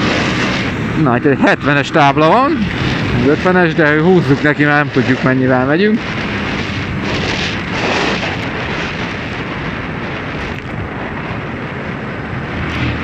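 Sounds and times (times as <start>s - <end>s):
motorcycle engine and tyre noise: 0.0s - 13.0s
wind rush on microphone: 0.0s - 13.0s.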